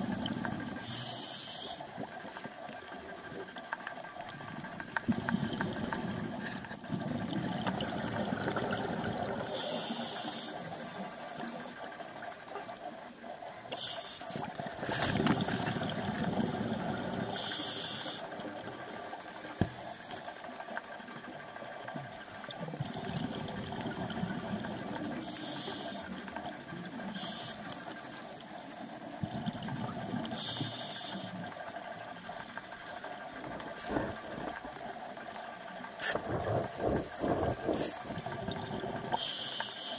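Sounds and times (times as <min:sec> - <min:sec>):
exhaled bubbles rumbling: 0:00.0 - 0:00.9, 0:01.9 - 0:09.6, 0:14.4 - 0:17.5, 0:20.9 - 0:25.4, 0:29.0 - 0:30.5, 0:31.4 - 0:39.3
hissing regulator inhales: 0:00.8 - 0:01.8, 0:17.3 - 0:18.3, 0:25.2 - 0:26.1, 0:30.3 - 0:31.4, 0:39.1 - 0:39.9.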